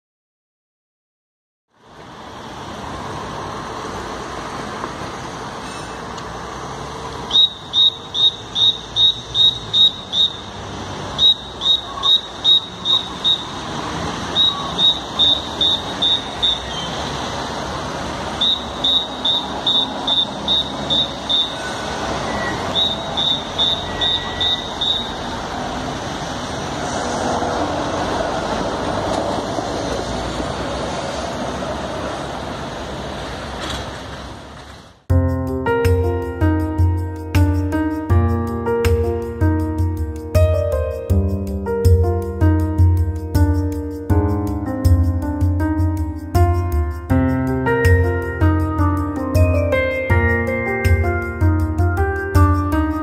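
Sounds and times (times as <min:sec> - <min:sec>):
city road traffic: 0:01.7 - 0:53.0
tram passing: 0:01.8 - 0:35.3, 0:35.9 - 0:53.0
high electronic beeping: 0:07.3 - 0:10.5, 0:11.2 - 0:13.6, 0:14.3 - 0:17.0, 0:18.4 - 0:25.2.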